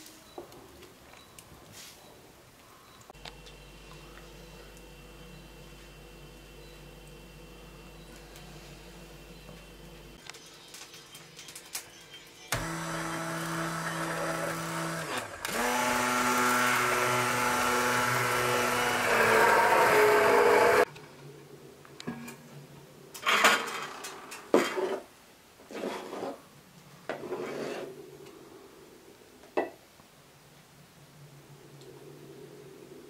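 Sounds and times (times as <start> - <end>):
immersion blender running: 12.6 - 20.9.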